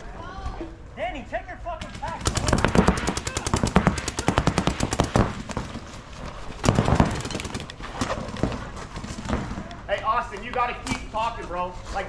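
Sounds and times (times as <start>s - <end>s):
paintball markers firing: 1.9s - 5.8s.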